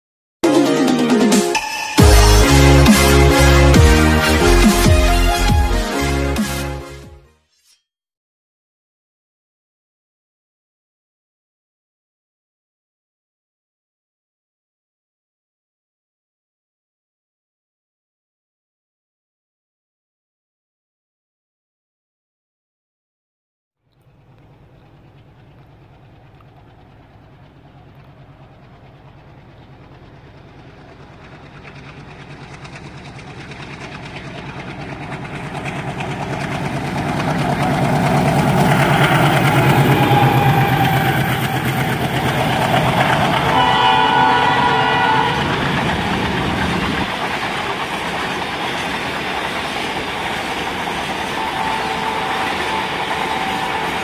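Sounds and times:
diesel locomotive engine running: 1.6 - 6.8, 24.0 - 54.0
train wheels rumbling on rails: 24.0 - 54.0
train horn: 37.7 - 46.2, 51.0 - 54.0.

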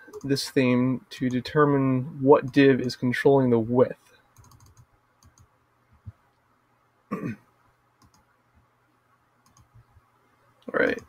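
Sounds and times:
computer mouse clicks: 0.1 - 0.4, 4.4 - 6.4, 8.0 - 8.3, 9.4 - 9.9.

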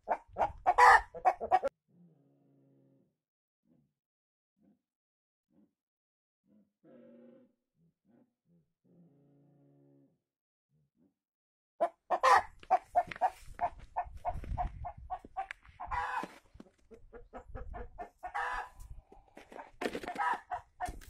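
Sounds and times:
chicken calls: 0.0 - 1.7, 11.8 - 21.0
chickens clucking: 0.0 - 1.7, 11.8 - 21.0.

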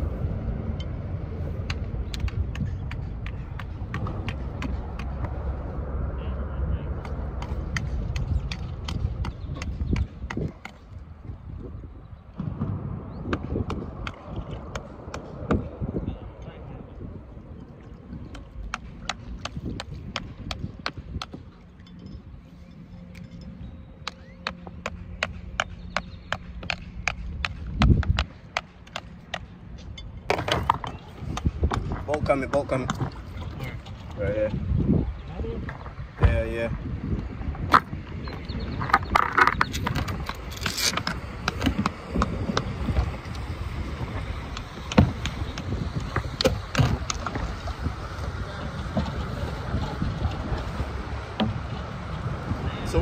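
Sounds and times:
low steady hum: 0.0 - 53.0
wind on microphone: 0.0 - 53.0
low thump: 12.4 - 13.8
water lapping against kayak: 16.7 - 23.0, 30.4 - 36.0.

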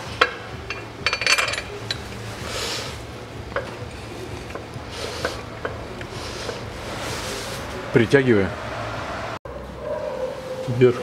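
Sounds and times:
metal clinks of bolts and tools: 0.7 - 2.1.

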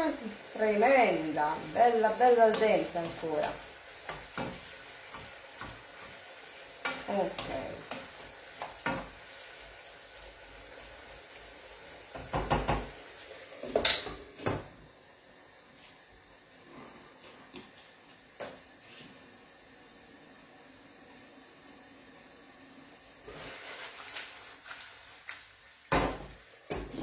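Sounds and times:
faint sizzle from pan: 0.0 - 27.0
wooden spoon scraping a pan: 0.8 - 9.2, 23.2 - 25.2.

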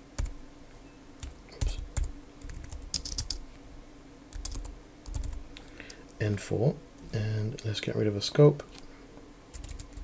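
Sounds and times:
typing on computer keyboard: 1.2 - 3.4, 4.3 - 5.4, 9.5 - 10.0.

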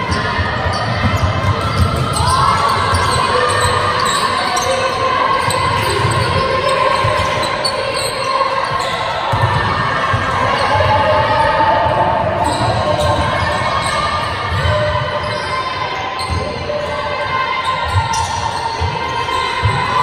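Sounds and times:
basketball bouncing on wooden court: 0.0 - 4.7, 5.4 - 15.5.

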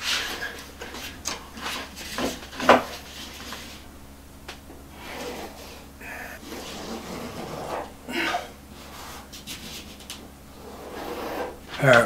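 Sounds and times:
cardboard rubbing against plywood: 5.0 - 7.9.

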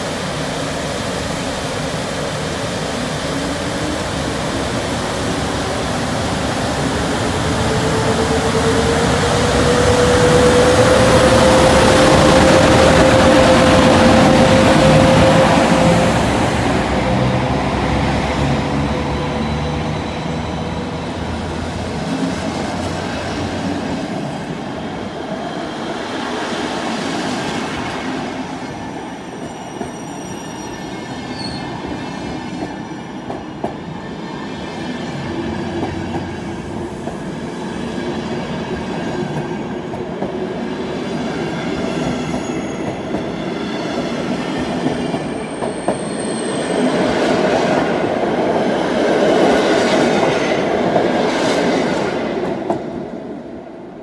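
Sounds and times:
train wheels rumbling on rails: 0.0 - 30.3, 31.0 - 53.3
high wheel squeal: 29.3 - 32.3, 45.3 - 47.0.

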